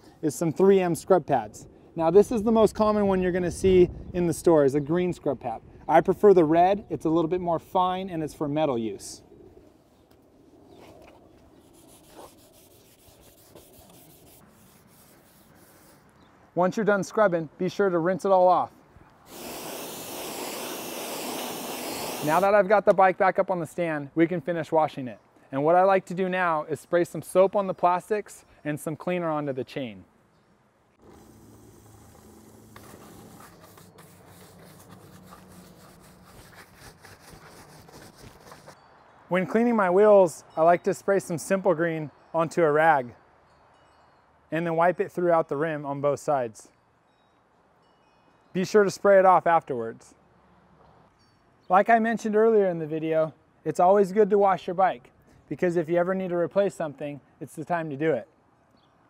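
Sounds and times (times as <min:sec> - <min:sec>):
scrub pad scrubbing metal: 0:11.7 - 0:16.0, 0:32.5 - 0:38.8.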